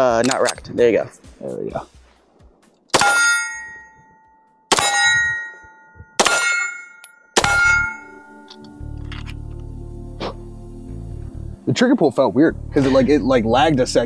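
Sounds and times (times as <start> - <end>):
pistol shots: 2.9 - 3.4, 4.7 - 5.4, 6.2 - 6.8
metallic ringing tone: 3.0 - 9.3.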